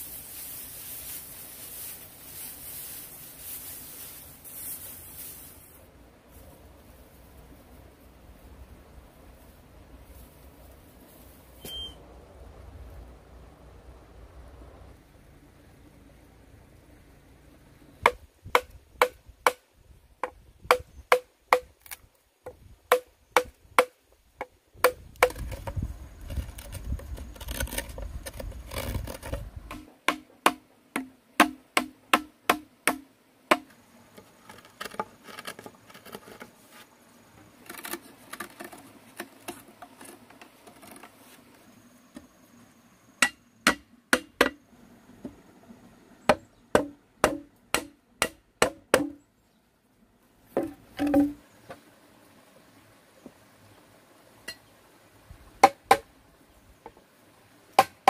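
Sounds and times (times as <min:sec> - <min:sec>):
steady noise: 0:00.0 - 0:20.3
chopping knocks on bamboo: 0:20.2 - 0:21.7, 0:29.7 - 0:33.7, 0:43.2 - 0:44.6, 0:46.8 - 0:49.2, 0:55.6 - 0:56.1, 0:57.8 - 0:58.0.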